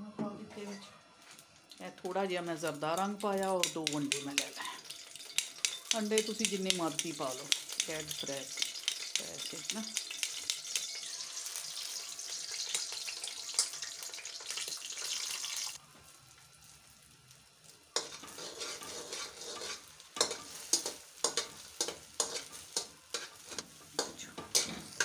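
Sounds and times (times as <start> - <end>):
eggs sizzling in hot oil: 1.2 - 25.0
fork scraping against pan: 18.0 - 25.0.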